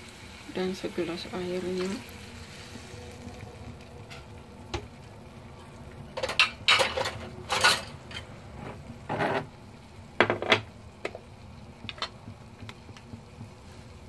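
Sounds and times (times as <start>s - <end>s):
kitchenware clattering: 6.1s - 9.5s, 10.2s - 10.7s.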